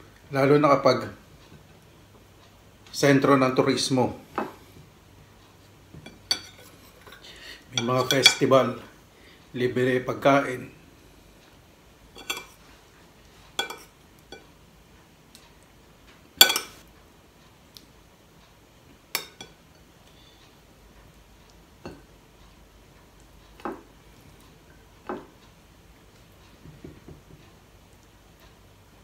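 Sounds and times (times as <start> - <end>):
spoon clinking on ceramic plates: 6.0 - 7.2, 7.8 - 8.5, 12.2 - 12.6, 13.6 - 14.4, 16.4 - 16.8, 19.2 - 19.8.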